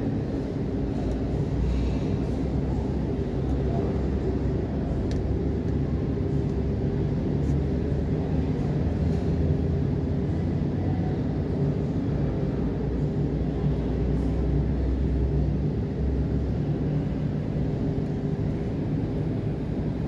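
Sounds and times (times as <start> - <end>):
low droning hum: 0.0 - 20.0.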